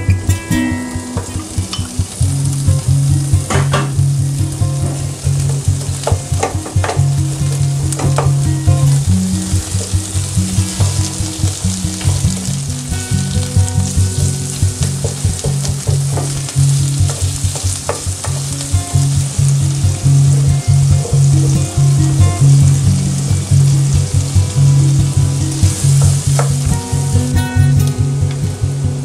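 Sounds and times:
vegetables sizzling in a frying pan: 0.0 - 29.0
spatula tapping and scraping pan: 1.0 - 22.5, 25.6 - 26.9.

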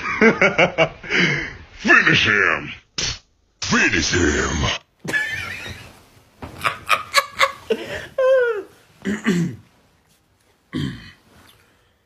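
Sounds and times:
person laughing: 6.6 - 8.8.

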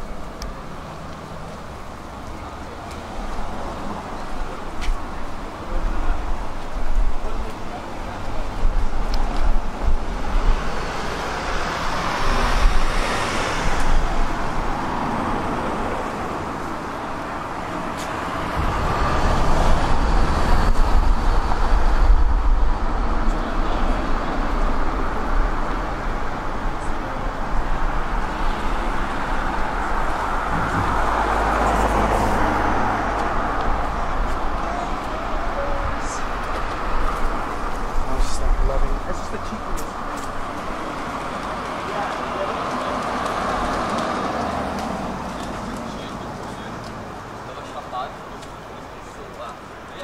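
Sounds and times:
cars passing along street: 0.0 - 50.0.

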